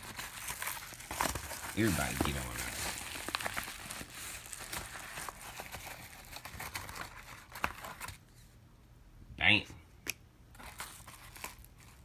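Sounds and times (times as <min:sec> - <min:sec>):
seed packaging rustling: 0:00.0 - 0:08.2.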